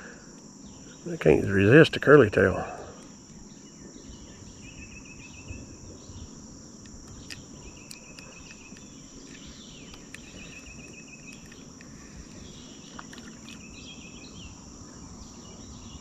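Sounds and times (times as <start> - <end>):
insects chirring: 0.0 - 16.0
rapid insect trill: 0.0 - 16.0.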